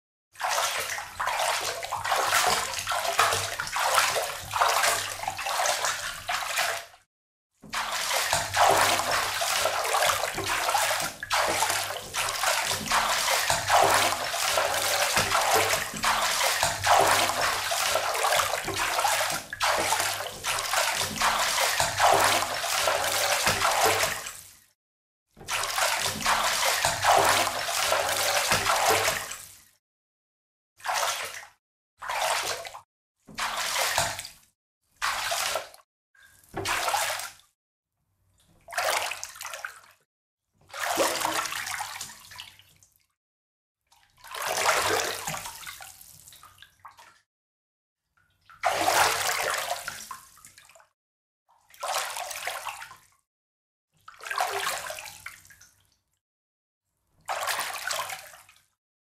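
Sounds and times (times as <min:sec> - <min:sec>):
footsteps splashing in shallow water: 0:07.8 - 0:24.3, 0:25.5 - 0:29.3.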